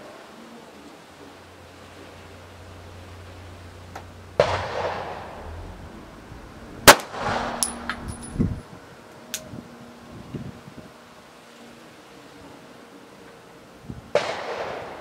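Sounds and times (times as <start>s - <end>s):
pistol shots with echo: 4.4s - 5.5s, 6.8s - 8.0s, 14.2s - 15.0s.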